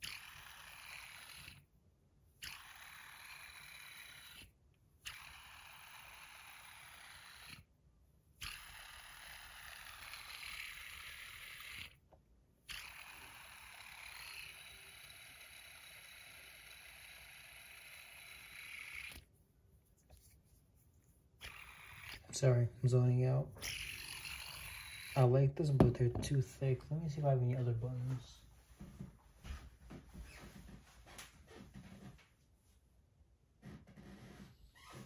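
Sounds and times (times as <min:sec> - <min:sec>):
fidget spinner bearing whirring: 0:00.0 - 0:01.7, 0:02.4 - 0:07.7, 0:08.4 - 0:12.1, 0:12.7 - 0:19.3, 0:21.4 - 0:22.6, 0:23.6 - 0:25.3.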